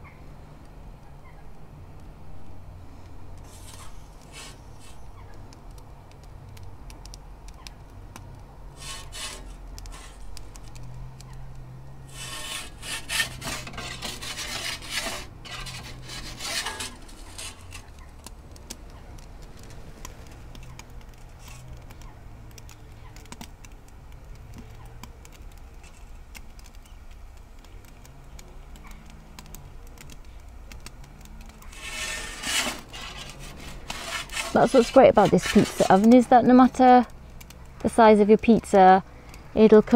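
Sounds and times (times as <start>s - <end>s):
metal peel scraping stone: 3.4s - 5.1s, 8.8s - 10.8s, 12.1s - 18.0s, 31.6s - 37.1s.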